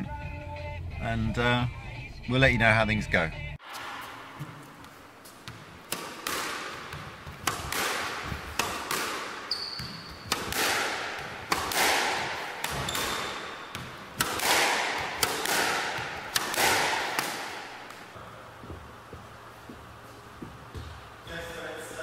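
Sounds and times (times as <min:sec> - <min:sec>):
squash ball smacks: 0:05.4 - 0:18.1
shoes squeaking on wooden floor: 0:09.4 - 0:10.5, 0:12.7 - 0:14.2, 0:18.6 - 0:21.2.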